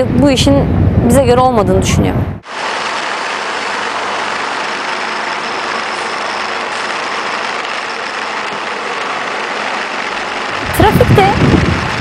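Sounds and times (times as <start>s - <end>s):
wind noise: 0.0s - 2.4s, 10.5s - 12.0s
road noise: 0.0s - 12.0s
motorcycle engine: 2.4s - 12.0s.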